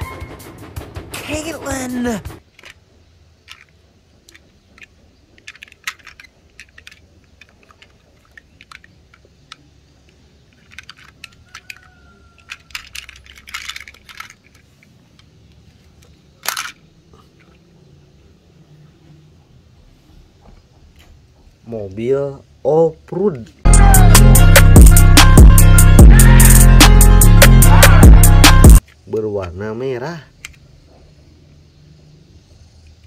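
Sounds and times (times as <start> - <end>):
plastic toys clicking: 2.4 - 17.6, 28.8 - 29.6, 30.3 - 30.7
plastic toy scrape: 10.5 - 11.8.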